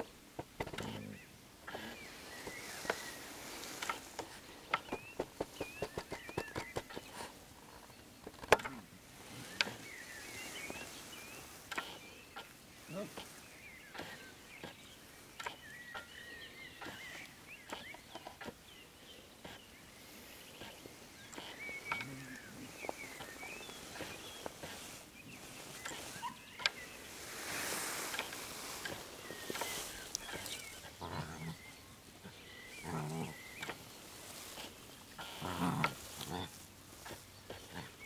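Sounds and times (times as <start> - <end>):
puppies growling and grunting: 30.2 - 33.7, 35.2 - 36.6.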